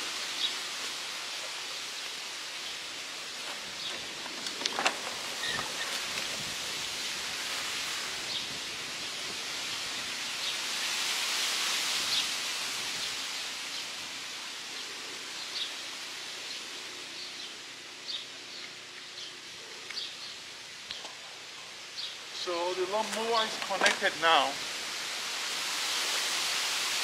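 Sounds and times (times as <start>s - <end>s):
steady outdoor hiss: 0.0s - 27.0s
small birds chirping: 14.6s - 23.5s.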